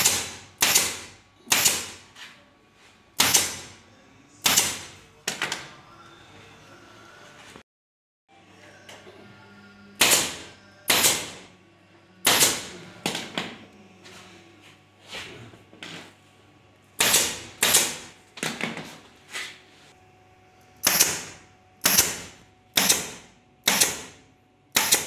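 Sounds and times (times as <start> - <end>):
pneumatic staple gun firing: 0.0 - 2.0, 3.2 - 3.7, 4.4 - 4.8, 10.0 - 11.4, 17.0 - 18.0, 20.8 - 25.0.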